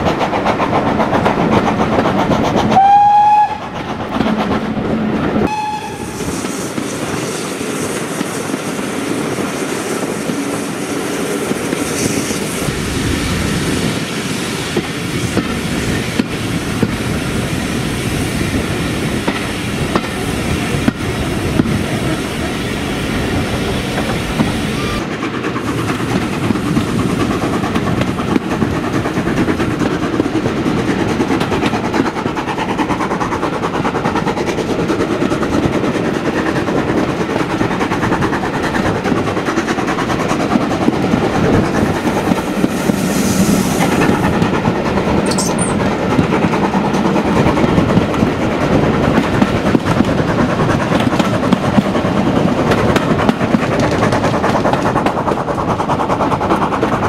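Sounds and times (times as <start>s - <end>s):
train wheels rumbling on rails: 0.0s - 57.0s
steam locomotive whistle: 2.8s - 3.7s, 5.4s - 6.6s, 24.6s - 25.1s.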